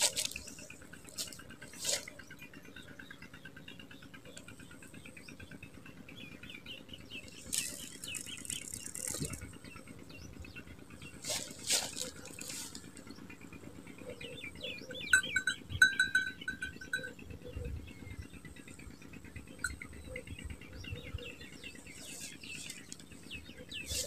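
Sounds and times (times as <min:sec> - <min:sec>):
small birds chirping: 0:00.0 - 0:24.0
rattling jingle of quick ticks: 0:07.3 - 0:09.6.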